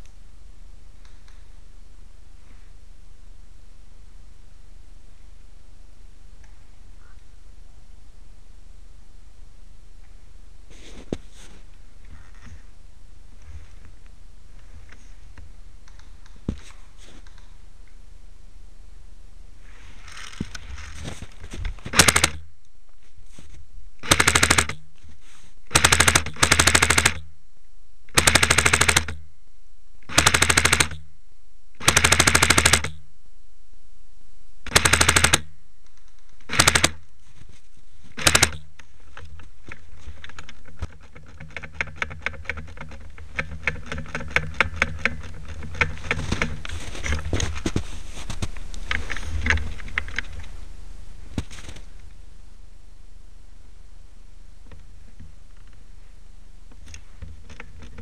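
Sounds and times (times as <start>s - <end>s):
airsoft gun firing bursts: 21.9s - 22.4s, 24.0s - 24.8s, 25.7s - 27.3s, 28.1s - 29.2s, 30.1s - 31.0s, 31.8s - 33.0s, 34.7s - 35.5s, 36.5s - 37.0s, 38.2s - 38.7s
scattered clicks and snaps: 38.2s - 47.6s.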